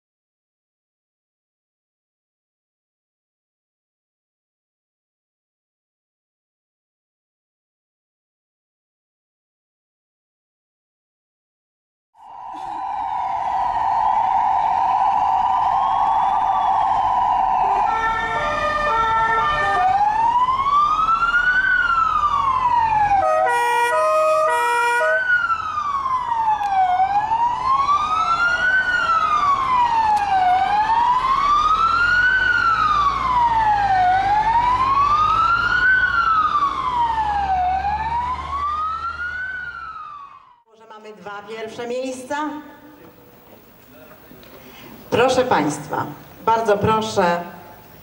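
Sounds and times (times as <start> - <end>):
stepped siren tones: 12.2 - 40.6
ambulance siren wailing: 12.2 - 40.7
stuttering horn blast: 23.2 - 25.3.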